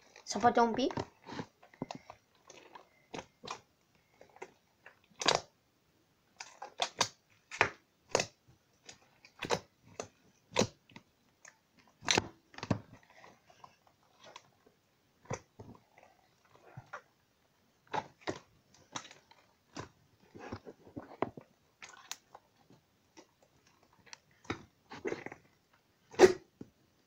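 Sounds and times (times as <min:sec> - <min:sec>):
slime squishing and popping: 0:00.8 - 0:05.5, 0:06.4 - 0:11.0, 0:11.8 - 0:14.5.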